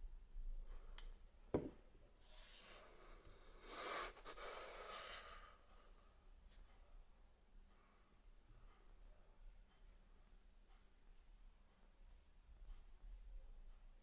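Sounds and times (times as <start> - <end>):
device knocking on wooden desk: 1.5 - 1.8
soft breathy noise: 2.0 - 14.0.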